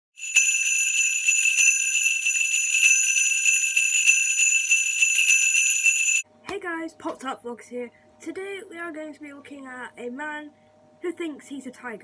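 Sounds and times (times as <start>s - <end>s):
sleigh bells jingling: 0.2s - 6.2s.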